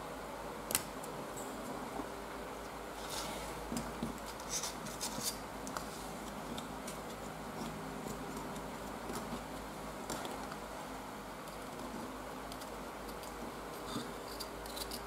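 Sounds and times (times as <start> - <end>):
steady low hum: 0.0 - 15.0
tool clicking and scraping clay: 11.4 - 15.0.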